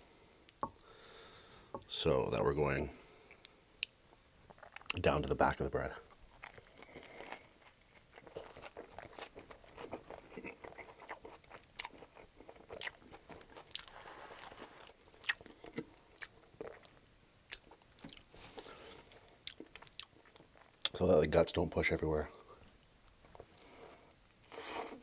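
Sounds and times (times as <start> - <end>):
crunchy sandwich chewing: 6.0 - 21.0.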